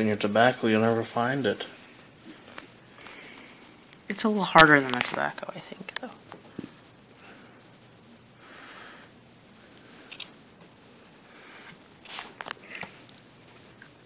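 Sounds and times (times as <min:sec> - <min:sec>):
tobacco rustling and crackling: 0:01.6 - 0:06.8, 0:11.2 - 0:14.0.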